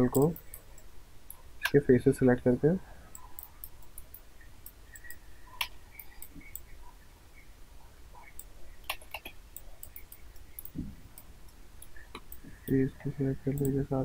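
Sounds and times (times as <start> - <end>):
faint low hum: 0.0 - 14.0
computer mouse clicking: 0.2 - 1.8, 3.1 - 6.7, 8.2 - 13.8.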